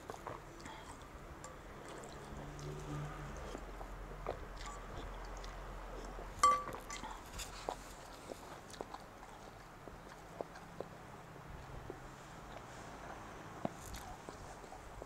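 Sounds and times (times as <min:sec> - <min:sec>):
soft eating clicks: 0:00.0 - 0:12.7
utensil clinking ceramic bowl: 0:06.4 - 0:07.0.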